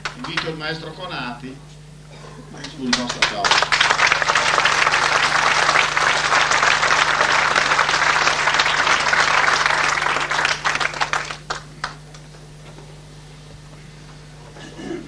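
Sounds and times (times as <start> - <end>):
audience applauding: 0.0 - 0.6, 2.6 - 12.4.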